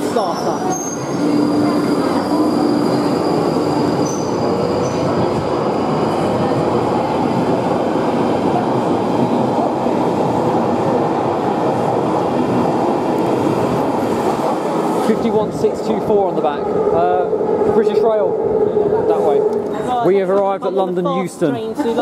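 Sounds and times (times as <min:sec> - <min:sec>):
train wheels rumbling on rail: 0:00.0 - 0:20.6.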